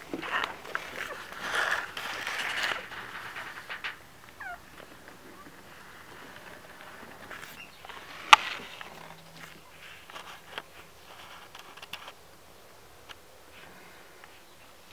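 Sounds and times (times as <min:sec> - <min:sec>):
puppies snuffling: 0:00.0 - 0:11.9.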